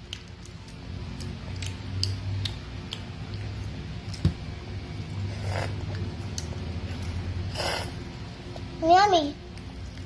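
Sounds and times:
mouth clicks and smacks chewing: 0.0 - 4.2
low steady hum: 0.0 - 10.0
short slurp: 5.2 - 6.0, 7.5 - 8.0.

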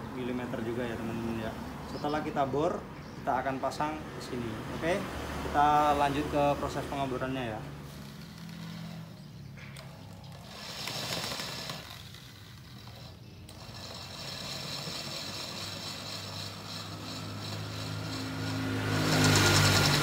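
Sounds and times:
electric drill boring metal: 7.3 - 20.0.

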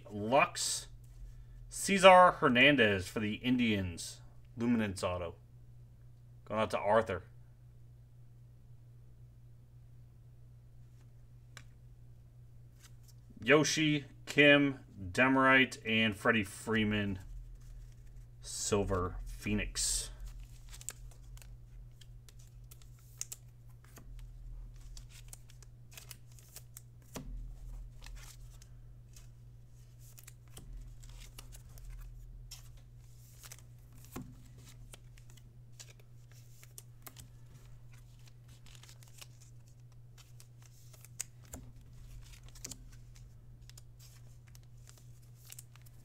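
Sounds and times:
steady low hum: 0.0 - 46.0
cards clicking and rustling: 17.2 - 18.2, 20.0 - 46.0.

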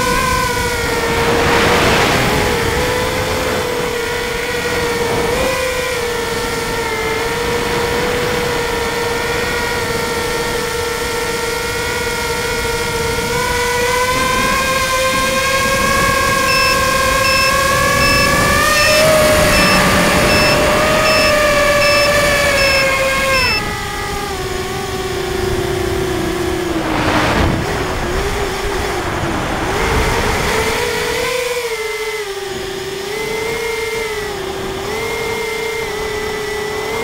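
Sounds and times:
drone motors whining: 15.3 - 24.8
short high beep: 16.5 - 23.6.

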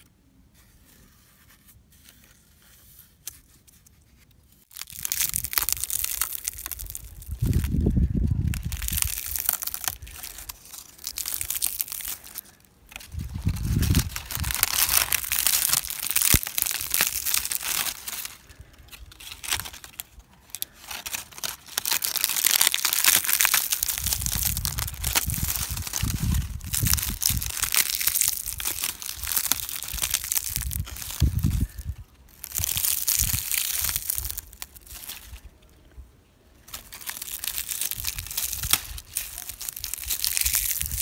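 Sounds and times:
dry leaves crackling: 4.6 - 35.5, 36.6 - 41.0
low rumbles: 4.8 - 22.3.

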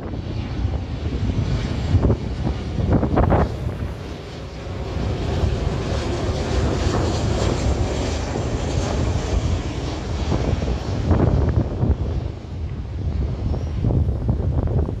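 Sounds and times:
airliner passing low overhead: 0.0 - 15.0.

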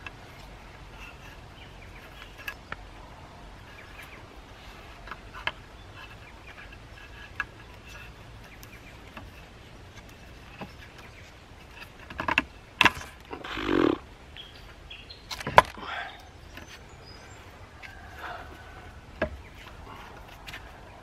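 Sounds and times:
clicks and knocks on timber: 5.0 - 13.3, 15.3 - 15.8, 17.8 - 21.0
faint bird calls: 13.3 - 21.0.

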